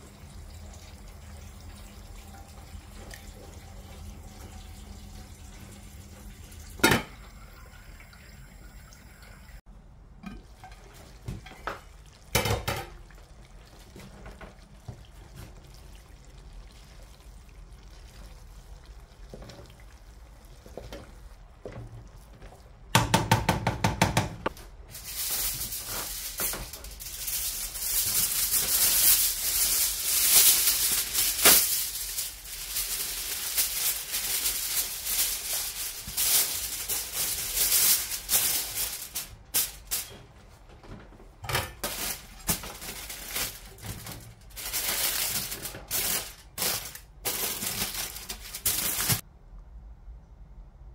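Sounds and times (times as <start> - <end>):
aluminium foil crinkling: 24.6 - 40.2, 41.8 - 49.2.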